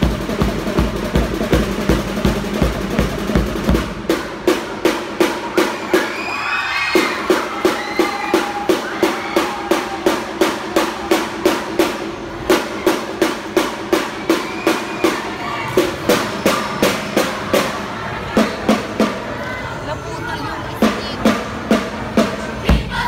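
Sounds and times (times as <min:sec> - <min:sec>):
percussive beat: 0:00.0 - 0:06.1
squad chanting in unison: 0:22.6 - 0:23.0.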